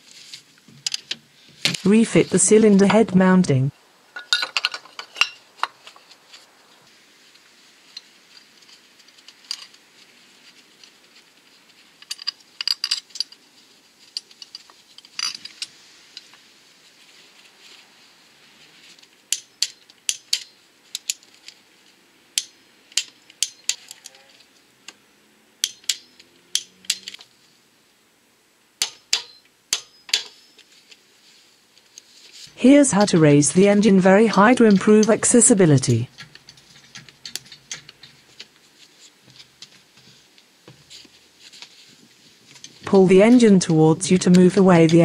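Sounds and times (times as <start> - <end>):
tools clinking on metal: 4.2 - 5.8, 14.5 - 15.7, 25.6 - 27.2, 28.8 - 30.6.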